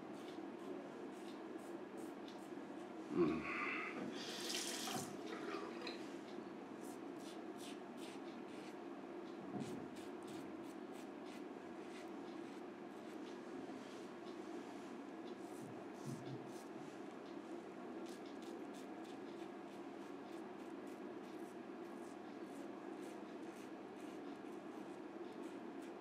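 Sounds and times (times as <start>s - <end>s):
running tap water: 4.2s - 5.9s.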